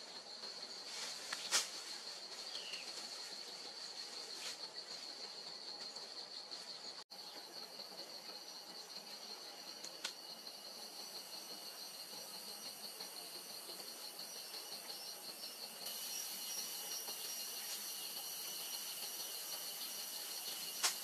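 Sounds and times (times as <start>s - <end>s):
insects chirping: 0.0s - 21.0s
bright high hiss: 15.8s - 21.0s.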